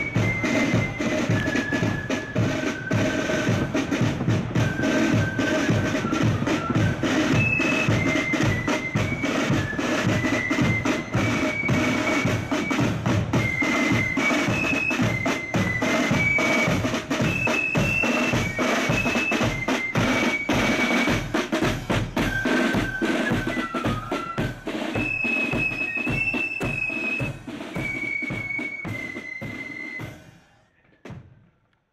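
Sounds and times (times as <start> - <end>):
flutes playing melody: 0.0 - 30.7
snare drums: 0.0 - 31.7.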